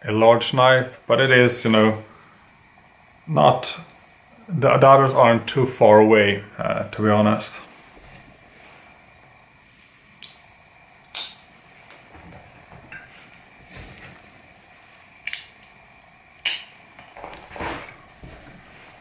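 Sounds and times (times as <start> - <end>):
soft handling noise: 11.7 - 15.1, 17.1 - 19.0.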